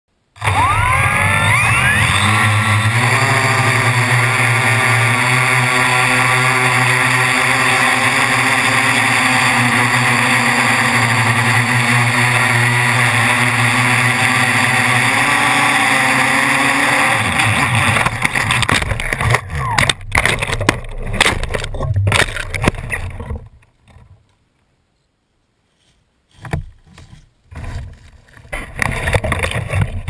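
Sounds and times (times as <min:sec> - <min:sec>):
drone motors buzzing whine: 0:00.4 - 0:23.5.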